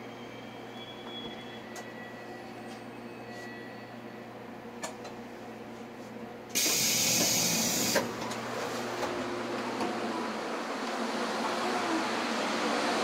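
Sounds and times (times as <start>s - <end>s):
low hum in train car: 0.0s - 13.0s
compressed air hiss: 6.6s - 8.0s.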